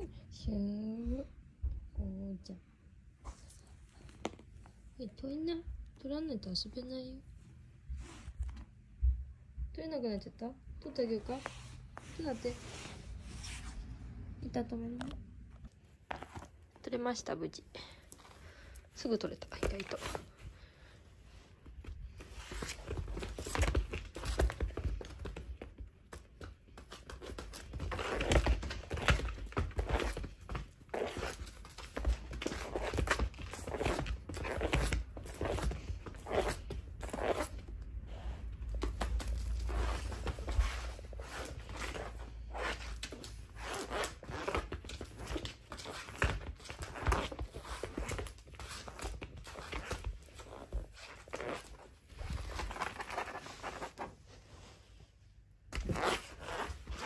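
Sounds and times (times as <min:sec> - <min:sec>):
cat paws scraping on mat: 0:07.9 - 0:08.7, 0:11.1 - 0:14.0, 0:15.7 - 0:55.1, 0:55.7 - 0:57.0
clothing rustling: 0:11.0 - 0:14.2, 0:15.0 - 0:57.0.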